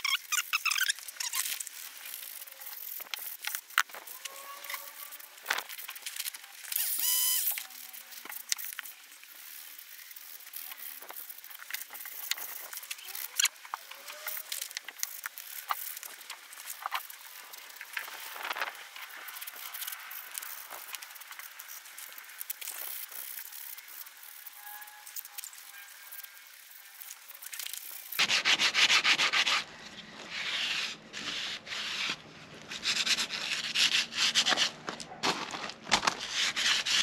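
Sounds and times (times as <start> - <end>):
short high squeal: 6.8 - 7.6, 24.4 - 26.4.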